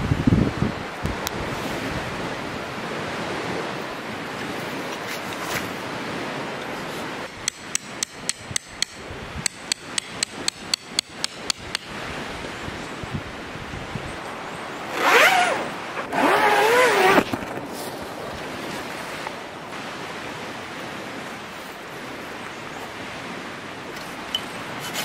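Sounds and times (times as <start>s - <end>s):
lake waves: 0.0s - 25.0s
wind: 0.0s - 25.0s
tent peg being hammered: 7.3s - 11.9s.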